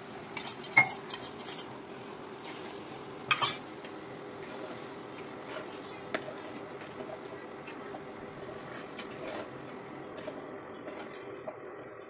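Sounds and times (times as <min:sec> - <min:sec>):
cooling fan hum: 0:00.0 - 0:12.0
spoon scraping and clinking on pan: 0:00.4 - 0:01.7, 0:03.3 - 0:03.7.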